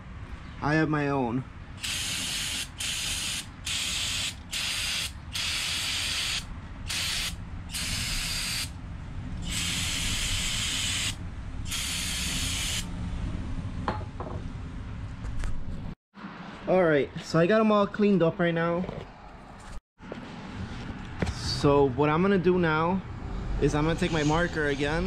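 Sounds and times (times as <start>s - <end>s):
aerosol can spraying: 1.8s - 8.7s, 9.5s - 12.8s.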